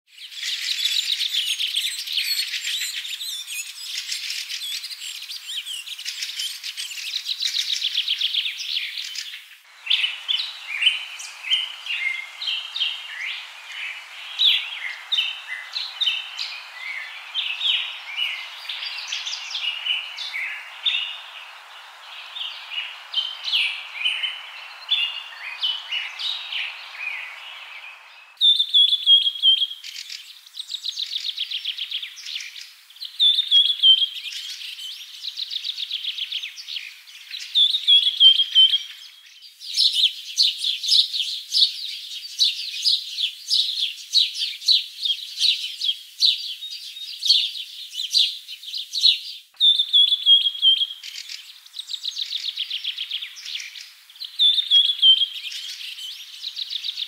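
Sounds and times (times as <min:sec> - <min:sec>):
songbirds chirping and trilling: 0:00.2 - 0:57.0
buzzy bird trill: 0:09.9 - 0:28.4.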